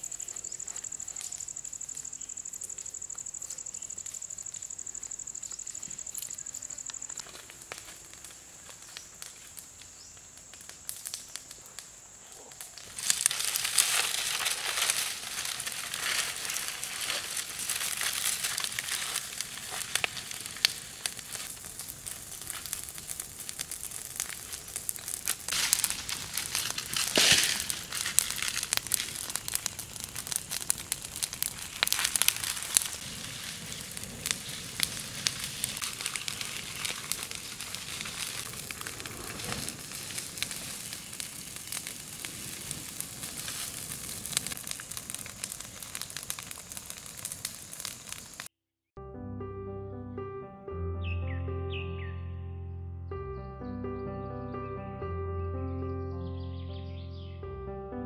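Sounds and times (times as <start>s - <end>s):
steady hiss: 0.0s - 45.6s
leaves popping: 0.0s - 48.5s
wood fire crackling: 0.0s - 48.5s.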